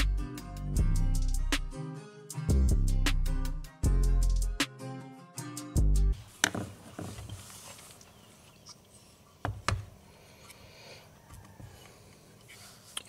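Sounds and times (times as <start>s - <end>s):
background music: 0.0s - 6.2s.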